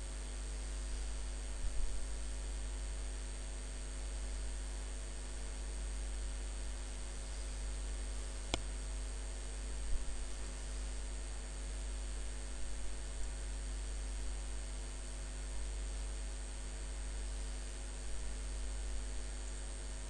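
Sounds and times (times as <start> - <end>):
electrical mains hum: 0.0 - 20.0
faint hiss: 6.9 - 11.4.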